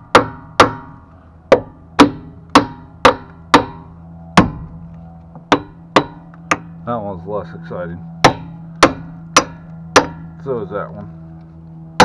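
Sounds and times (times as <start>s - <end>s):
hammer striking metal: 0.1s - 4.7s, 5.5s - 6.7s, 8.2s - 10.3s.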